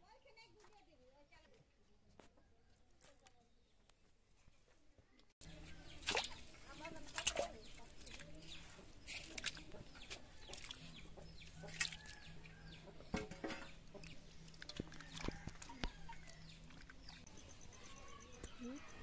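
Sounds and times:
chickens clucking: 0:05.5 - 0:17.8.

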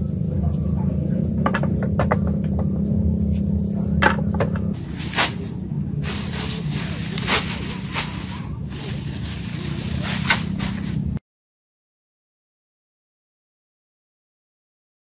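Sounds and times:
steady low hum: 0:00.0 - 0:11.2
bamboo poles knocking: 0:01.3 - 0:03.0, 0:03.9 - 0:05.4
leafy branches rustling: 0:04.7 - 0:11.2.

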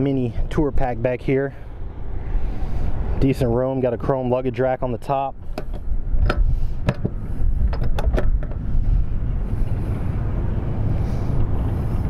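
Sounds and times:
wind buffeting microphone: 0:05.3 - 0:12.0.

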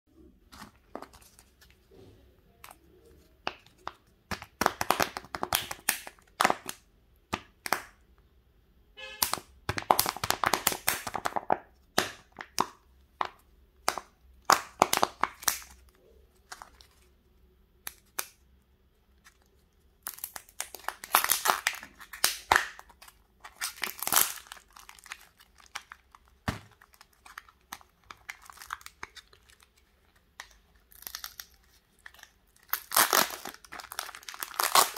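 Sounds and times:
plastic wrapper crinkling: 0:00.2 - 0:01.9, 0:14.6 - 0:18.4, 0:19.0 - 0:34.9.

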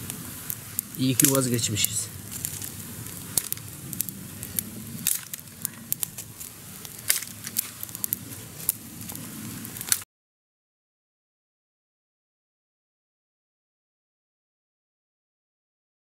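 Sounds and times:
campfire crackling and popping: 0:00.0 - 0:10.0.

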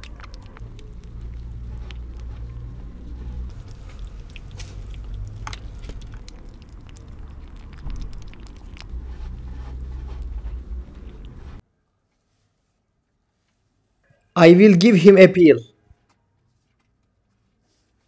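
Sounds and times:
kitten chewing wet food: 0:00.0 - 0:11.6
steady low rumble: 0:00.6 - 0:11.6.

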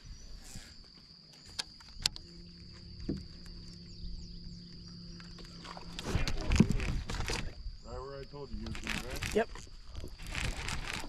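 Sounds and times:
steady low hum: 0:02.0 - 0:08.6.

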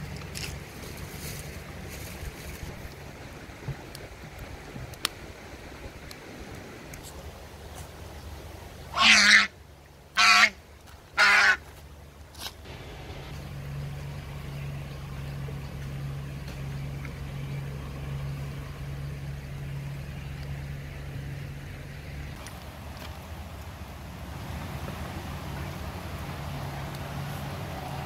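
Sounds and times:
goose honking: 0:08.9 - 0:09.5, 0:10.1 - 0:10.6, 0:11.2 - 0:11.7
steady low hum: 0:11.6 - 0:28.0.

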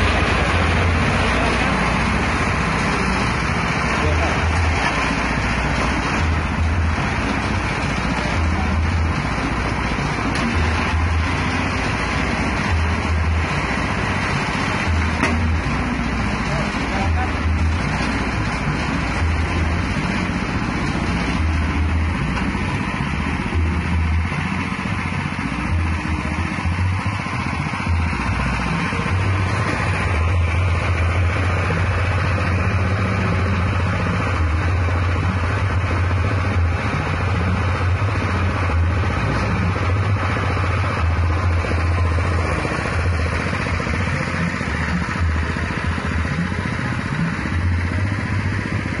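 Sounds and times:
small petrol engine running: 0:00.0 - 0:49.0.

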